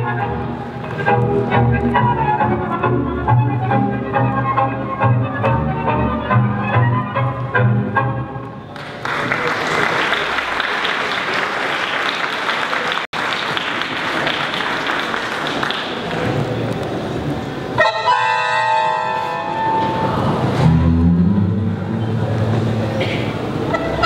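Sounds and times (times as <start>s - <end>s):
audience applauding: 8.7s - 16.7s.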